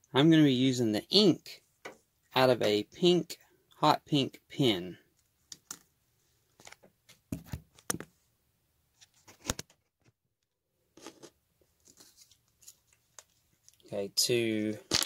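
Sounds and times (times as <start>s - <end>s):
small handling clicks and rustles: 5.1s - 5.9s, 6.5s - 8.2s, 11.0s - 14.0s.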